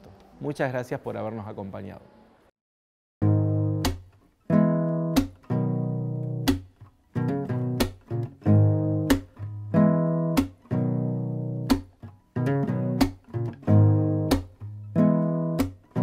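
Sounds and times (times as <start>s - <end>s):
guitar chords ringing: 3.2s - 16.0s.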